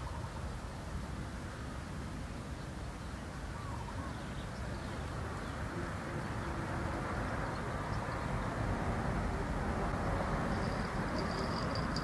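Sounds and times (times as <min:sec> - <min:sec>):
faint bird calls: 0:00.0 - 0:00.6, 0:03.4 - 0:06.7
low outdoor rumble: 0:00.0 - 0:12.0.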